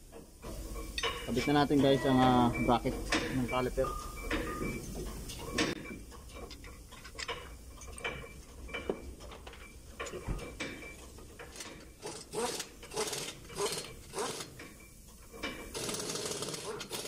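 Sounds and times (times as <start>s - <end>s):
metal clinks: 0.8s - 17.0s
ratchet wrench clicking: 11.5s - 14.6s, 15.7s - 17.0s.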